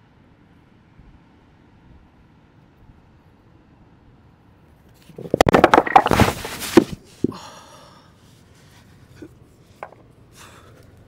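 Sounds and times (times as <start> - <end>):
rocks crashing onto stones: 5.2 - 7.4.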